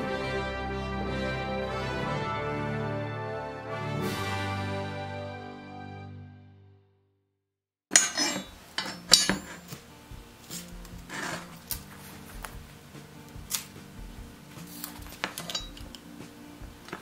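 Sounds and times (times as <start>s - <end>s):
music: 0.0s - 7.4s, 8.2s - 17.0s
metal bars clanking on workbench: 7.9s - 9.7s, 15.1s - 16.0s.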